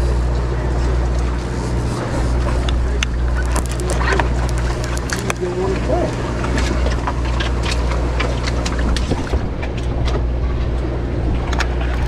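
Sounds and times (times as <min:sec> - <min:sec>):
boat engine droning: 0:00.0 - 0:12.0
water wash: 0:00.0 - 0:12.0
sharp clicks and knocks: 0:03.4 - 0:05.5.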